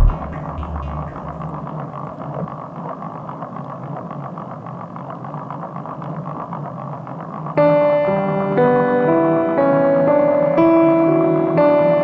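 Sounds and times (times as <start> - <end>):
rushing drone of bike ride in rain: 0.6 - 8.1.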